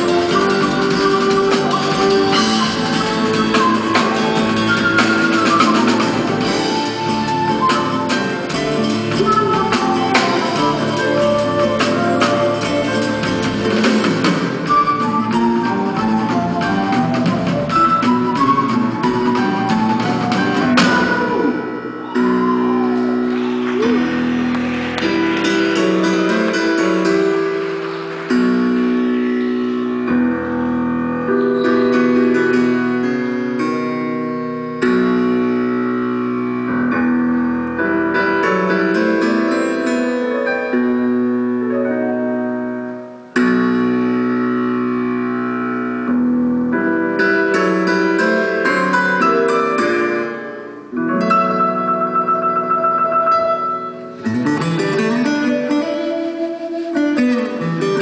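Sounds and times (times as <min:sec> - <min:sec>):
live band playing: 0:00.0 - 0:58.0.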